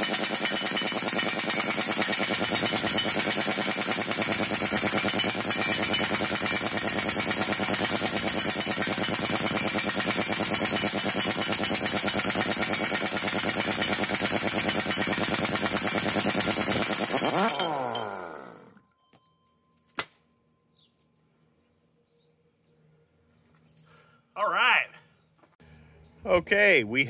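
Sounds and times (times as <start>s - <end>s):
impact wrench hammering: 0.0s - 18.6s.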